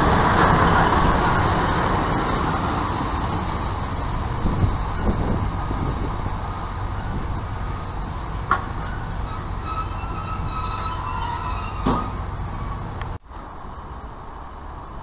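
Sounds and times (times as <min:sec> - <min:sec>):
diesel train engine rumbling: 0:00.0 - 0:15.0
high wheel squeal: 0:07.0 - 0:12.9
sharp knocks from train: 0:11.8 - 0:12.2.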